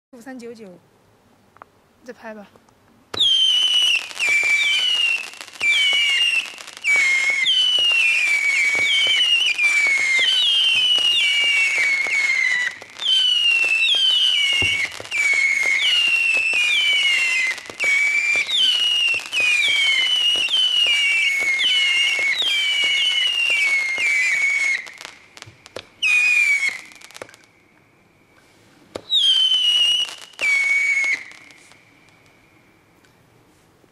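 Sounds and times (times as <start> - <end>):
firework pops: 2.5 - 27.5, 28.9 - 32.4
firework whistles falling in pitch: 3.1 - 32.6
heavy firework bang: 13.9 - 15.8.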